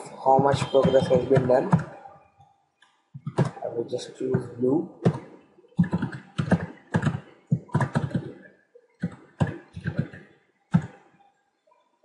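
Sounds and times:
computer keyboard typing: 5.8 - 8.4, 9.0 - 10.2.

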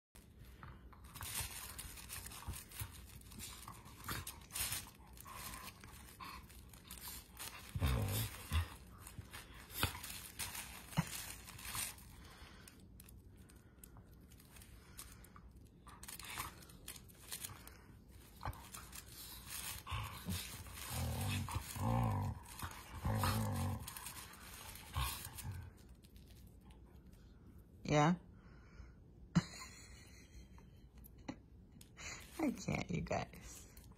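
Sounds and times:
low dog growls: 6.9 - 9.1, 19.6 - 25.9.

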